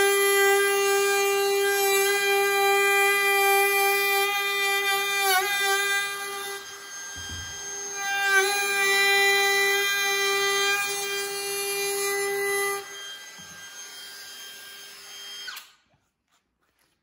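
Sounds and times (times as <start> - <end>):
router cutting wood: 0.0 - 15.8
router motor winding down: 5.1 - 15.8.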